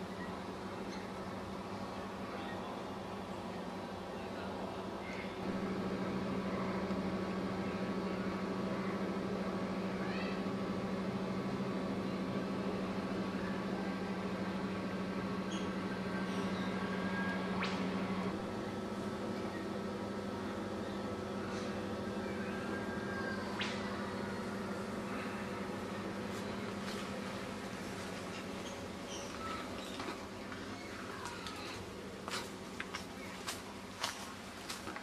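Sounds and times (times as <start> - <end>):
steady low hum: 0.0 - 35.0
faint bird chirps: 28.3 - 31.7.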